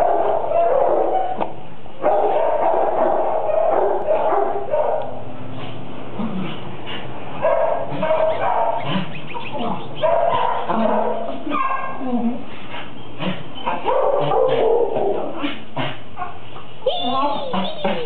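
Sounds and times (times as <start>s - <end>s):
dogs barking and yipping: 0.0s - 5.3s, 7.4s - 12.0s, 13.5s - 15.4s
dogs whimpering: 16.9s - 18.0s.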